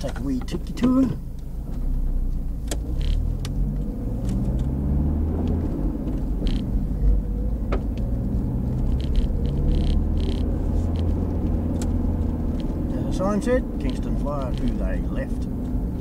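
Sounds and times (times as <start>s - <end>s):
car engine and road rumble: 0.0s - 16.0s
small clicks and rattles: 5.5s - 6.7s, 7.8s - 12.8s, 13.8s - 15.0s.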